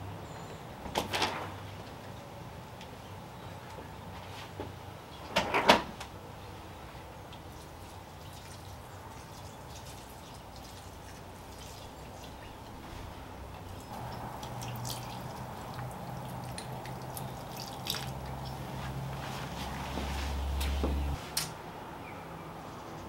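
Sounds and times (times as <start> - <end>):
dripping and small splashes: 7.3 - 13.0, 13.6 - 21.2
water pouring into soil: 7.5 - 12.4, 13.8 - 20.6.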